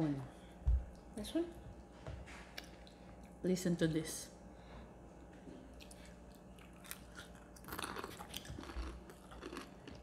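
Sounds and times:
crispy chicken skin crunching: 6.7s - 10.0s.

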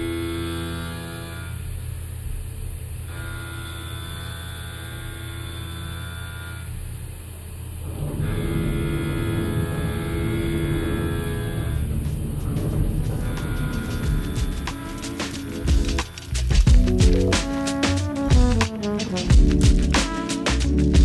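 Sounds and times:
low bass drone: 7.8s - 21.0s
synth chords: 7.9s - 21.0s.

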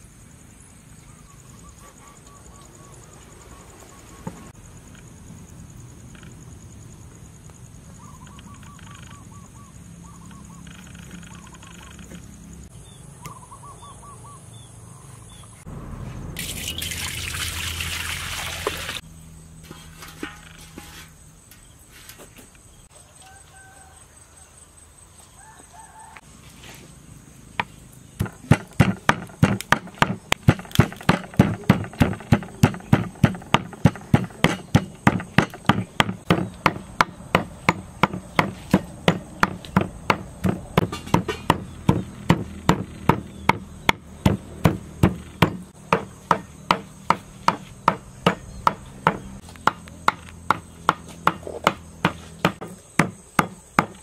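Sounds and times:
knife chopping on wooden board: 28.2s - 54.0s.

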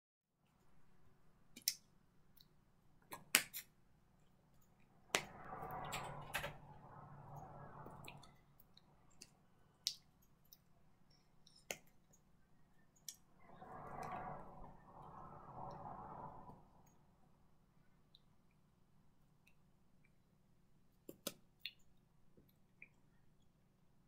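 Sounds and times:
hands clicking and tapping: 21.0s - 21.8s.

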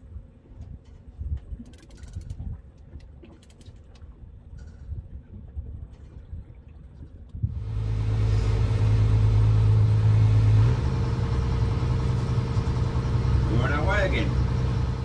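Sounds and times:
faint low rumble: 0.0s - 15.0s
boat engine hum: 7.0s - 15.0s.

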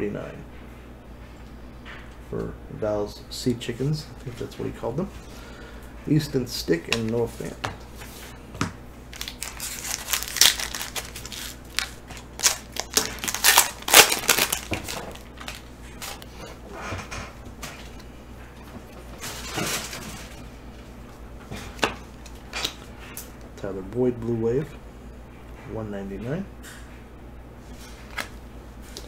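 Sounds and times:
foil pack tearing and crinkling: 9.1s - 16.3s.

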